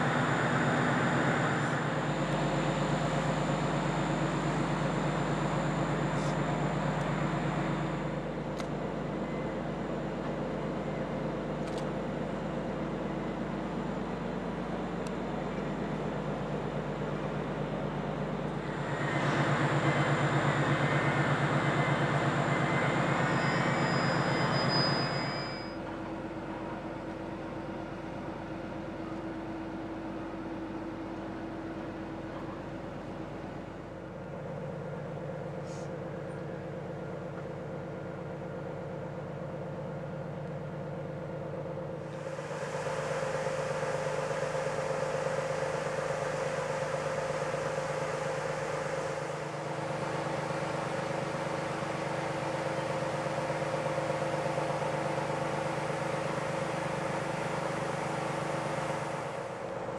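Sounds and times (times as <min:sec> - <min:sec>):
ship machinery hum: 0:00.0 - 0:59.9.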